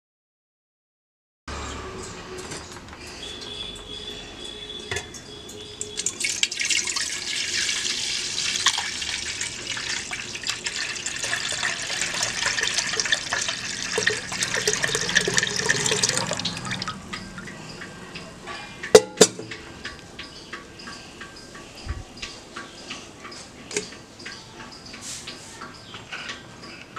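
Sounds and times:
milk pouring and splashing: 6.0s - 17.0s.

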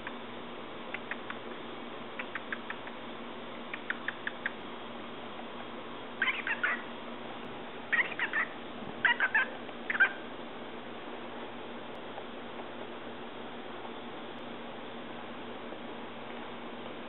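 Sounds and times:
cockatiel chattering: 2.2s - 3.0s, 3.7s - 4.6s, 6.2s - 6.9s, 7.9s - 10.2s.

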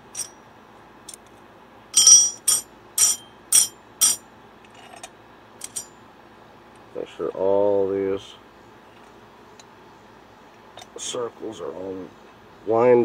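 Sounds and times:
metal rings clinking: 0.0s - 0.4s, 2.0s - 4.2s, 4.8s - 6.0s.

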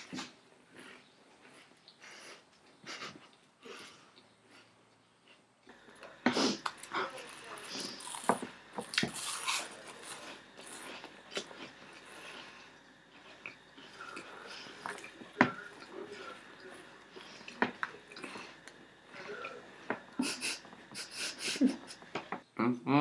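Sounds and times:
people chewing and crunching: 0.0s - 22.4s
breathing: 13.8s - 14.9s.

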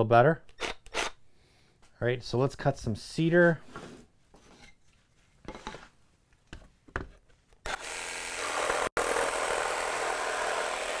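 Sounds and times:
jigsaw cutting wood: 7.6s - 11.0s.

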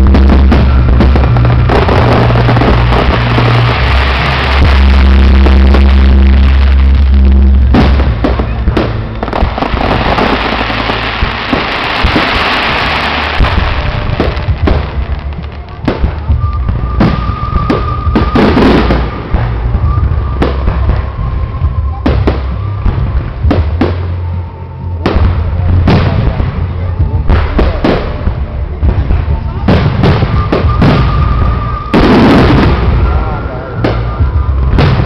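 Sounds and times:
firework bangs: 0.0s - 35.0s
fireworks crackling: 0.0s - 35.0s.

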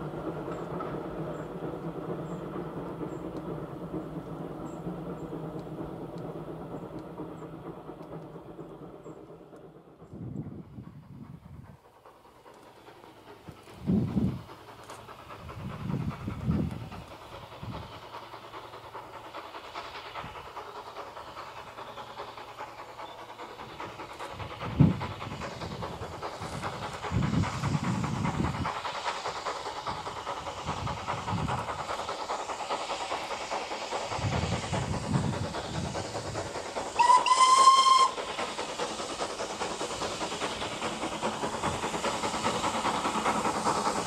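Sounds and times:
distant steam locomotive rumble: 0.0s - 44.0s
wind buffeting microphone: 10.0s - 11.8s, 13.4s - 14.6s, 15.2s - 18.1s, 23.8s - 28.8s, 29.8s - 32.0s, 34.1s - 36.8s.

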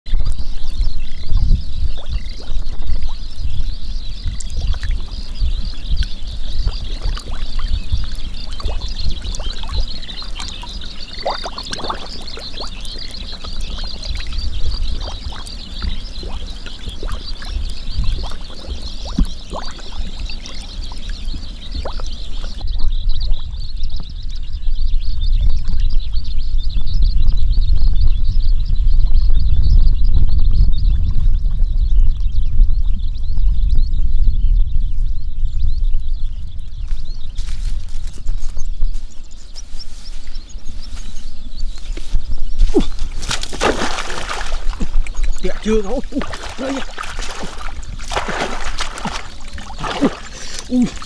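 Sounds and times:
low rumbling: 0.1s - 51.0s
frogs chorus: 0.3s - 26.2s, 42.6s - 51.0s
water and mud sloshing: 4.3s - 22.6s, 42.5s - 51.0s.

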